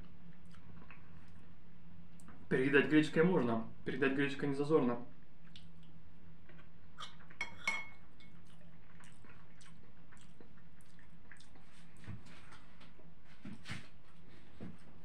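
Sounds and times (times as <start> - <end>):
wet chewing: 0.3 - 1.5, 5.4 - 13.0.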